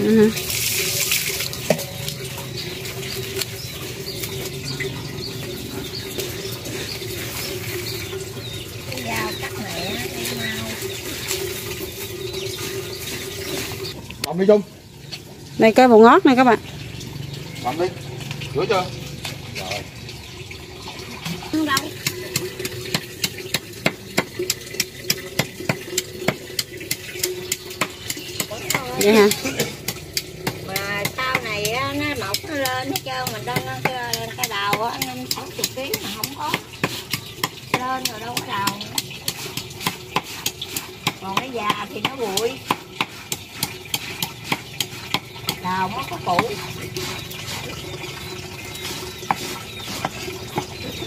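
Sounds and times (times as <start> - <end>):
small bird chirping: 1.6 - 18.6, 27.2 - 29.4, 43.8 - 51.0.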